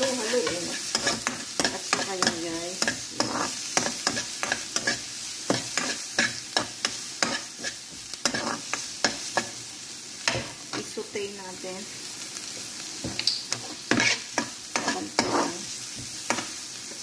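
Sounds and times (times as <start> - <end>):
spatula scraping and tapping pan: 0.0 - 9.6, 13.0 - 17.0
onion sizzling in oil: 0.0 - 17.0.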